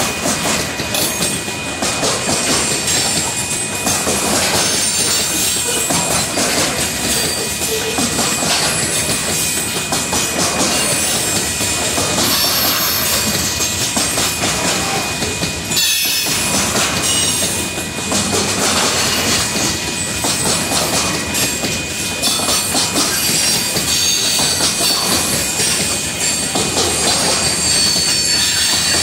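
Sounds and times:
train wheels rumbling on rails: 0:00.0 - 0:29.0
high wheel squeals: 0:12.2 - 0:17.7, 0:21.1 - 0:29.0.

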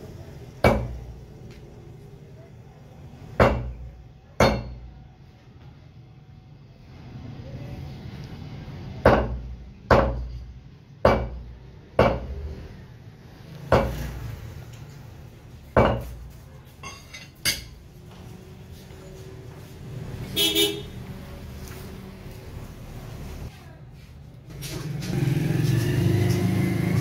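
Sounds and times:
cleaver chopping on wooden block: 0:11.1 - 0:11.4.

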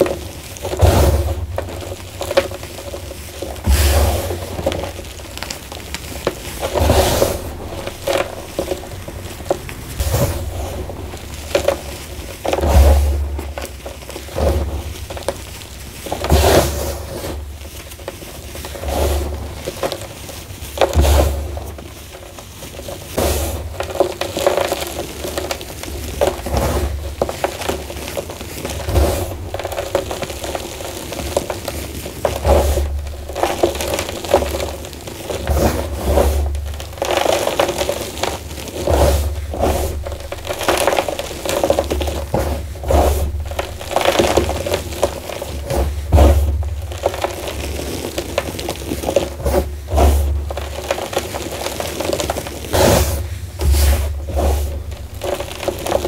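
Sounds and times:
chalk crumbling between hands: 0:00.0 - 0:56.0.

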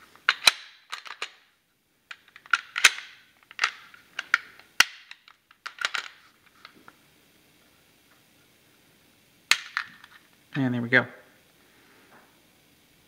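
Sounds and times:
pistol parts clicking: 0:00.3 - 0:01.4, 0:02.1 - 0:06.2.

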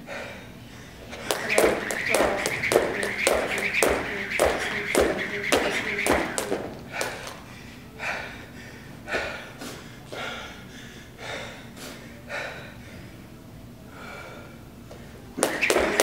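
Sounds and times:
man breathing hard: 0:00.0 - 0:03.2, 0:06.6 - 0:15.5.

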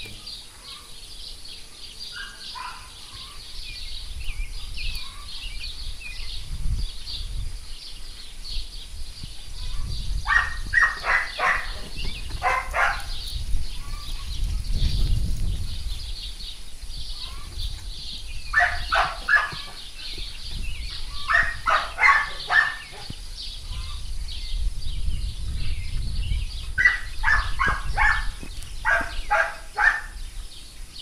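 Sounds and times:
dog barking: 0:02.2 - 0:02.9, 0:10.3 - 0:11.8, 0:12.4 - 0:13.2, 0:18.6 - 0:19.7, 0:21.3 - 0:23.1, 0:26.8 - 0:30.2.

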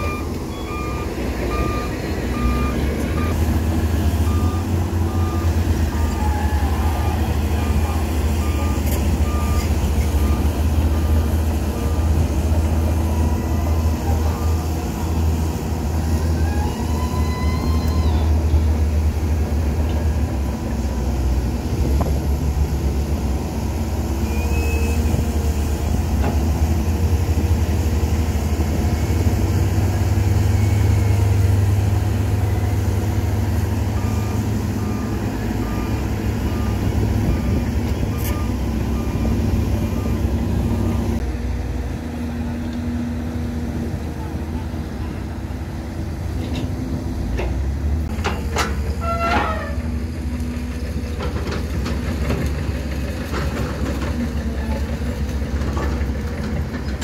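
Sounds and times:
reversing alarm beeps: 0:00.0 - 0:03.4, 0:04.2 - 0:06.6
heavy diesel engines rumbling: 0:00.0 - 0:57.0.

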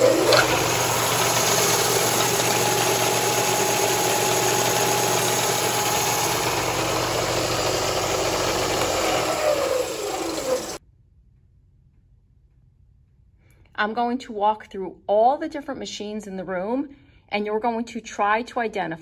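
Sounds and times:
belt sander motor hum and whir: 0:00.0 - 0:10.8.

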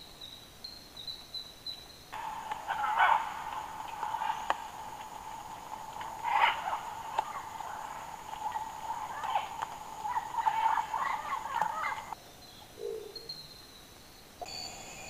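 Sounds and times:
insect drone: 0:00.0 - 0:15.0
short chirping calls: 0:00.1 - 0:15.0.

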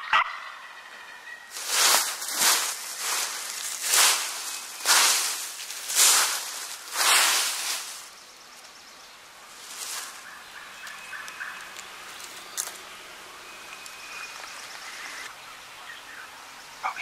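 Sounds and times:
turkey gobbling: 0:00.0 - 0:01.8.

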